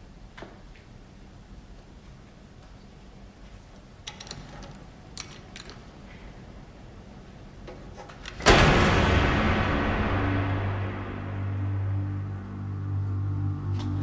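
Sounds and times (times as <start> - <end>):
padlocks clicking and rattling: 4.0 - 6.0
steady low hum: 5.8 - 14.0.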